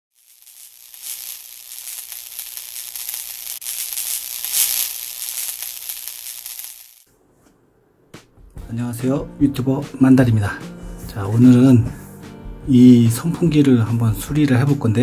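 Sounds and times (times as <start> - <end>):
high crackling hiss: 0.1 - 7.1.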